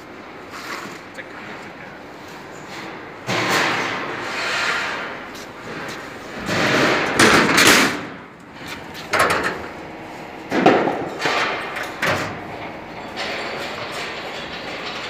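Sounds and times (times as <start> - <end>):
metal hood bangs and scrapes: 3.2 - 5.1, 5.7 - 8.2.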